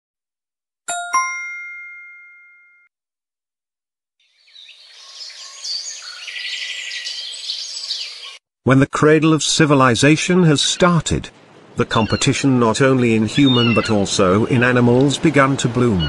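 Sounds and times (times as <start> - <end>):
birds chirping and calling: 4.2 - 8.4, 11.6 - 16.0.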